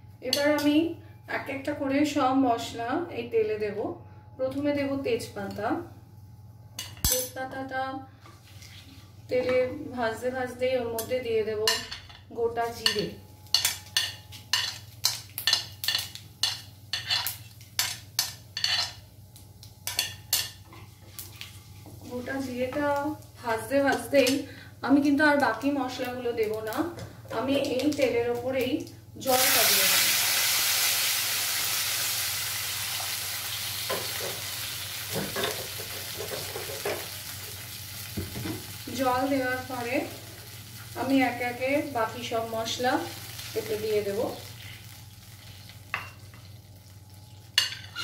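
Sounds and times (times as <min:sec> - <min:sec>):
water sizzling in hot oil: 0:29.2 - 0:47.7.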